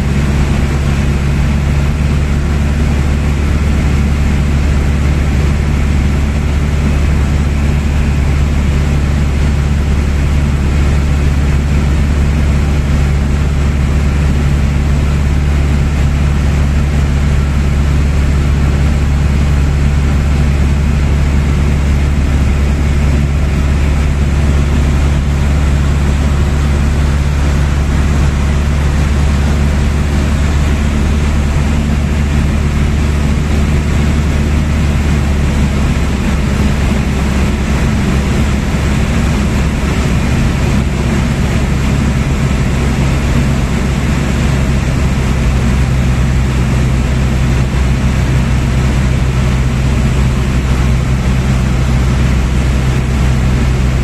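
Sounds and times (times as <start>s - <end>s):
aircraft engine drone in cabin: 0.0s - 54.0s.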